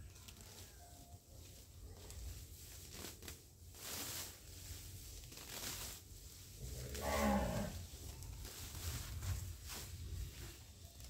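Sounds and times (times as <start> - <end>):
rustling: 0.0 - 11.0
cow mooing: 6.8 - 7.8.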